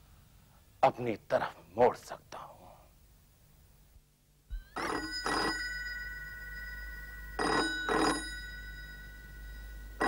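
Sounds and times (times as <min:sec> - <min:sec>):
landline telephone ringing: 0:04.7 - 0:10.0.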